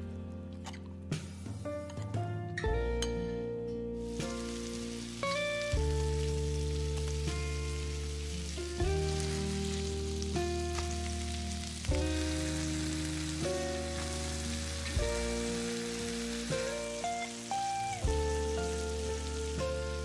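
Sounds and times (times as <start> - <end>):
background music of sustained chords: 0.0 - 20.0
chicken sizzling in oil: 4.0 - 20.0.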